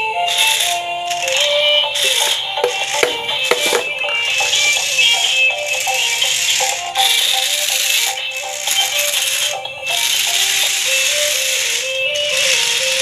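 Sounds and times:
plastic wheels rattling on tiles: 0.0 - 13.0
toy truck motors whirring: 0.0 - 13.0.

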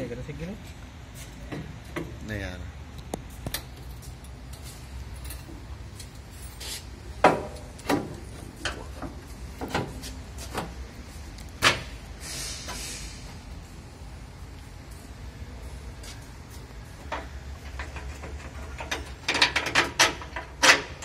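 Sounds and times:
tools knocking and clanking: 1.4 - 2.2, 7.2 - 10.8, 17.0 - 21.0.

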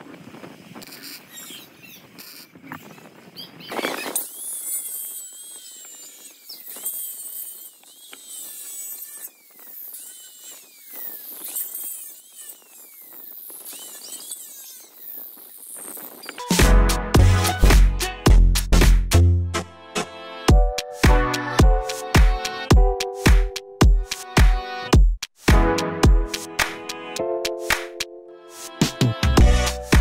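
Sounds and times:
welder crackling: 0.0 - 18.2
angle grinder whining on steel: 4.1 - 16.5
loud music: 16.5 - 22.7, 25.5 - 28.0, 28.6 - 30.0.

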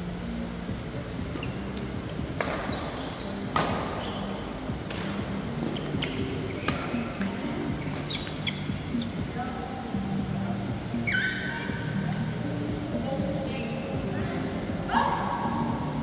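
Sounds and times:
shoes squeaking on court: 1.3 - 9.4, 11.0 - 11.9, 13.4 - 14.0
rackets hitting shuttlecock: 2.4 - 4.2, 4.8 - 8.6.

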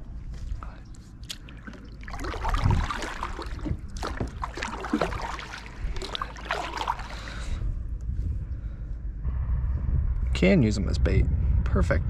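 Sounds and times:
low rumble: 0.0 - 12.0
kayak paddle strokes in water: 1.3 - 7.5
water trickling off paddle: 1.3 - 7.5.

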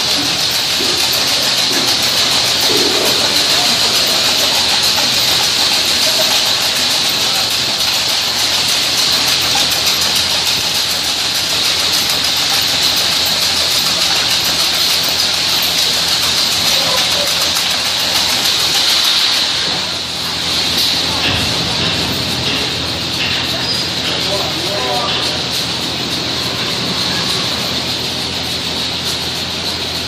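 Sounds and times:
machinery running: 0.0 - 30.0
strong hiss: 15.8 - 21.2.

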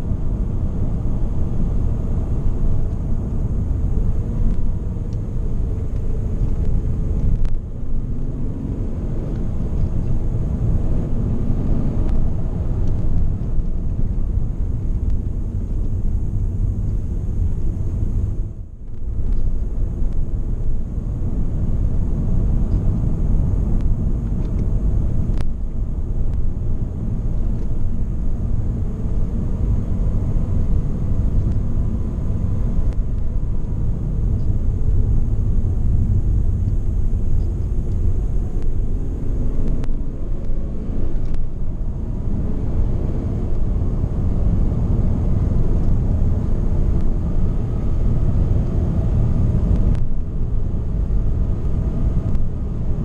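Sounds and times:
car engine: 0.0 - 53.0
road and tyre rumble: 0.0 - 53.0.

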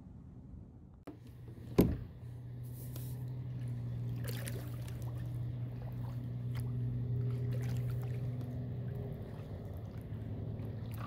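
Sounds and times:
steady low hum: 0.0 - 11.0
kayak paddle strokes: 2.6 - 11.0
water splashing and dripping: 2.9 - 11.0.

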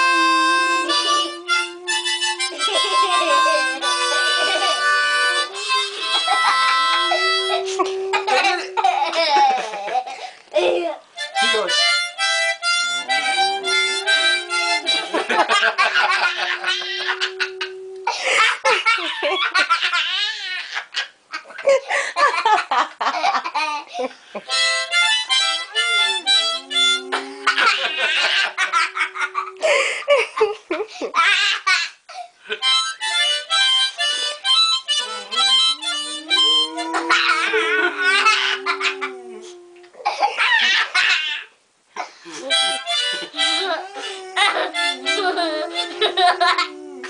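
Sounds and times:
dog howling: 0.0 - 9.6, 13.0 - 18.7, 25.4 - 29.9, 34.8 - 40.0, 43.4 - 47.0
harmonica: 0.0 - 9.7, 11.1 - 18.5, 24.4 - 30.0, 32.5 - 38.9, 42.3 - 46.4
people laughing: 0.1 - 10.8, 13.0 - 20.0, 25.7 - 31.2, 35.0 - 39.5, 42.3 - 47.0.

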